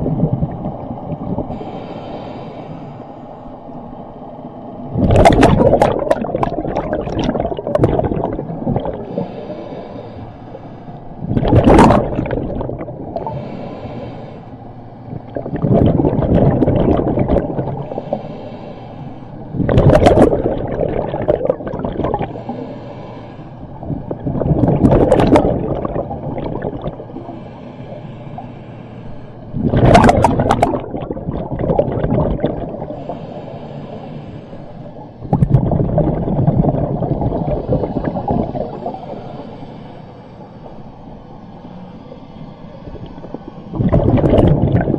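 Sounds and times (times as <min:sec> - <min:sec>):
gurgling exhaled bubbles: 0:00.0 - 0:01.6, 0:04.9 - 0:09.4, 0:11.2 - 0:13.4, 0:15.1 - 0:18.1, 0:19.5 - 0:22.6, 0:23.7 - 0:27.4, 0:29.5 - 0:33.2, 0:35.2 - 0:39.2, 0:42.8 - 0:44.9
breath hissing through regulator: 0:00.5 - 0:03.2, 0:06.6 - 0:44.0.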